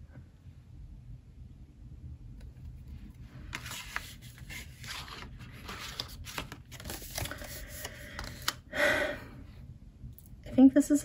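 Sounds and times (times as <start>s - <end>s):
paper and card rustling: 2.5s - 8.6s.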